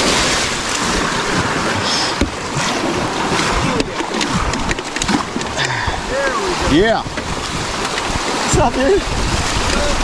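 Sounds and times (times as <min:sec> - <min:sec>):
sharp splashes and knocks: 0:00.0 - 0:06.0
whitewater rushing: 0:00.0 - 0:10.0.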